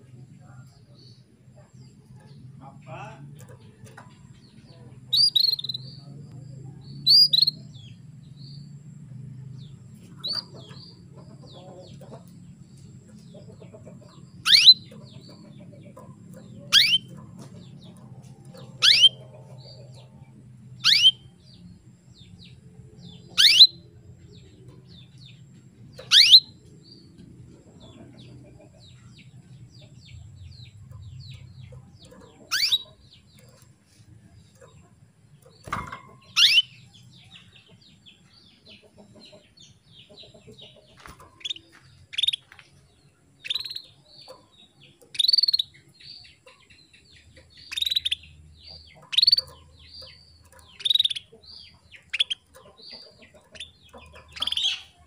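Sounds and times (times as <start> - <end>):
canary chirping: 0.7 - 8.8, 9.6 - 55.0
canary sharp downward calls: 14.4 - 14.8, 16.7 - 17.0, 18.8 - 19.2, 20.8 - 21.2, 23.4 - 23.7, 26.1 - 26.5, 32.5 - 32.9, 36.4 - 36.7.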